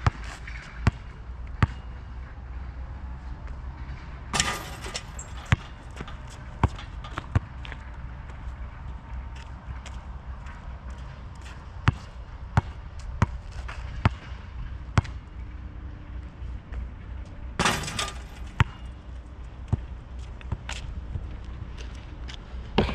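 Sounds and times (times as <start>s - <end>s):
basketball bouncing on asphalt: 0.0s - 1.9s, 4.3s - 8.4s, 9.4s - 15.3s, 17.6s - 19.0s, 19.6s - 21.3s
ball rattling on hoop: 4.3s - 7.7s, 17.6s - 19.0s.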